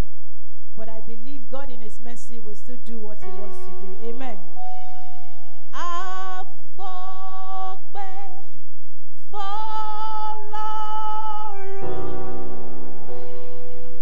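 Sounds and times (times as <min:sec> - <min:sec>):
music with low notes: 0:03.1 - 0:08.4, 0:09.2 - 0:14.0
woman singing: 0:05.8 - 0:08.6, 0:09.2 - 0:12.9.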